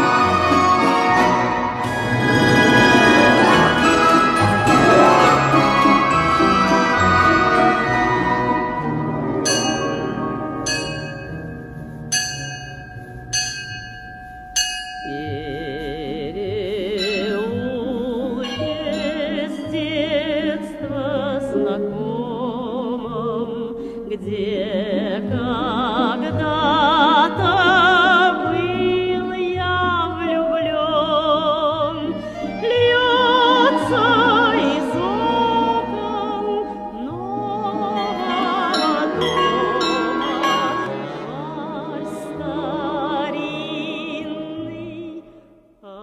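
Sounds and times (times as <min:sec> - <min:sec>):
person singing with vibrato: 0:00.0 - 0:11.8, 0:12.4 - 0:46.0
instrumental backing music: 0:00.0 - 0:23.4, 0:24.3 - 0:45.0
small bell ringing: 0:09.4 - 0:15.8, 0:17.0 - 0:20.2, 0:38.0 - 0:41.2.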